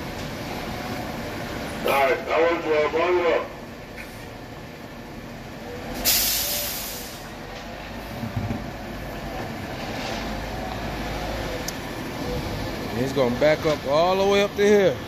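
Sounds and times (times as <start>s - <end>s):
diesel truck engine running: 0.0s - 15.0s
air brakes hissing: 5.9s - 7.3s.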